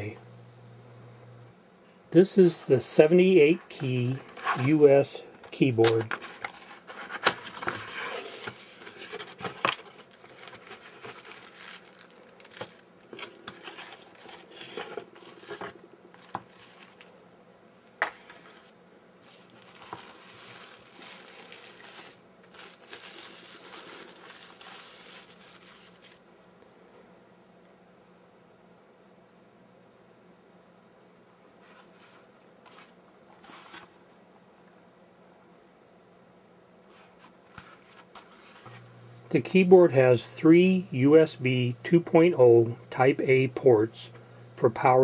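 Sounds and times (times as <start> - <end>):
cardboard and plastic crinkling: 3.8 - 17.2, 19.2 - 26.2.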